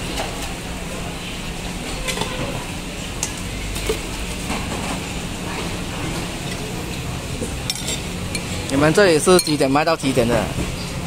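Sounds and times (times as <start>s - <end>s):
bowls and utensils clinking: 2.0s - 2.6s, 7.4s - 10.0s.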